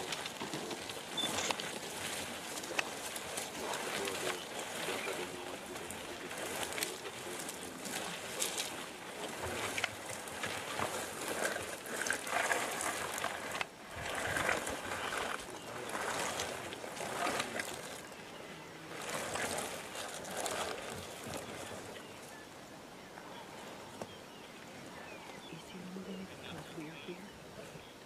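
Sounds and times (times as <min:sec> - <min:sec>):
carcass dragged over dry dirt: 0:00.0 - 0:22.4.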